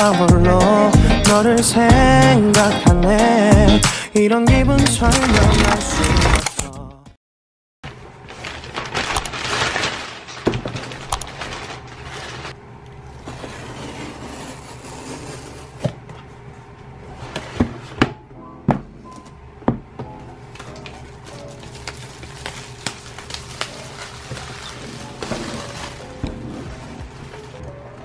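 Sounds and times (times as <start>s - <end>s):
cardboard rustling and scraping: 7.9s - 12.6s, 13.2s - 16.3s, 17.1s - 18.1s, 20.8s - 27.8s.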